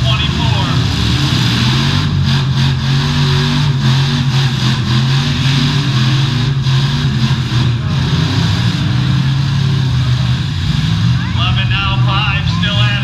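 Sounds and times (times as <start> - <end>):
car engines revving: 0.0 - 13.0.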